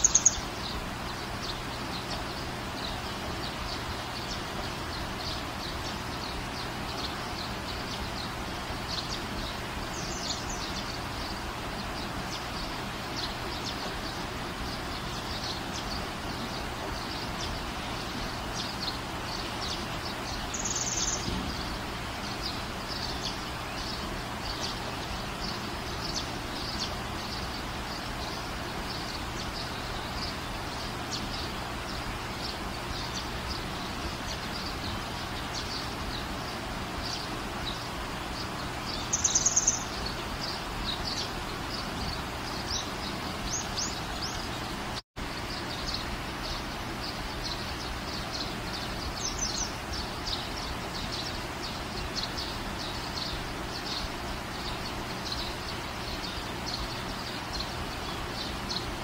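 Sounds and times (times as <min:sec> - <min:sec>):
background hiss: 0:00.0 - 0:59.0
small birds chirping: 0:00.0 - 0:59.0.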